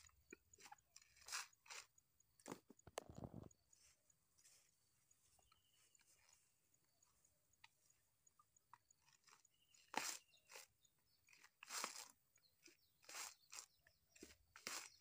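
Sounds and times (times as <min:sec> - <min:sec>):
dry coconut husk crunching: 0:00.0 - 0:03.1, 0:09.0 - 0:15.0.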